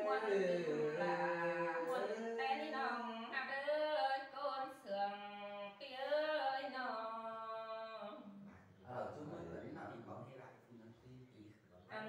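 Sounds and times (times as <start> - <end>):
person singing unaccompanied: 0.0 - 3.4.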